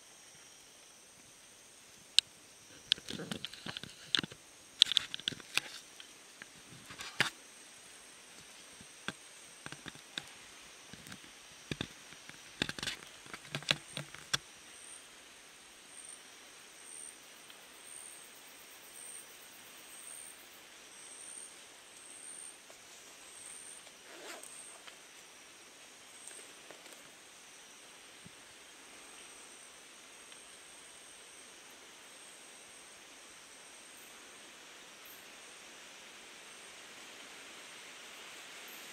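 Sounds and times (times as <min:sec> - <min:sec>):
high insect drone: 0:00.0 - 0:38.9
insect chirping: 0:00.0 - 0:38.9
camera handling clicks and rustles: 0:02.9 - 0:05.8, 0:11.0 - 0:14.4.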